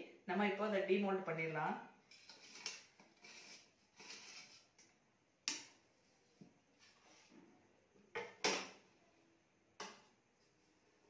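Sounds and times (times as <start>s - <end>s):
blade scraping metal tin: 2.1s - 4.7s.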